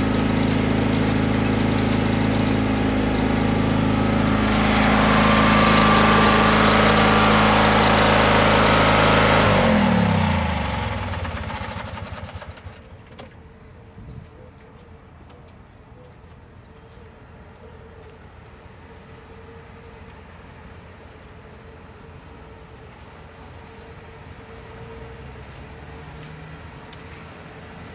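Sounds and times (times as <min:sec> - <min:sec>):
small gasoline engine running: 0:00.0 - 0:13.3.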